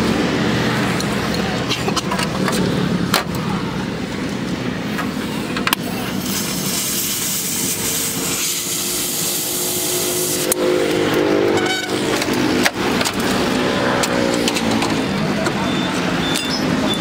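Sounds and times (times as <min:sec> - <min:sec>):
steady background noise: 0:00.0 - 0:17.0
gas welding torch hissing: 0:05.8 - 0:11.0.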